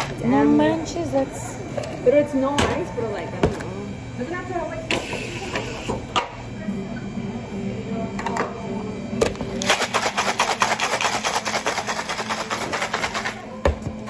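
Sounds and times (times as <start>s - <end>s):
drink shaker rattling: 9.6s - 13.4s.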